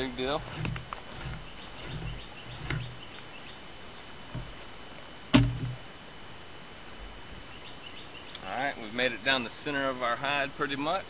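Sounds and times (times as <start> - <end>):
blade scraping hide: 0.0 - 3.1.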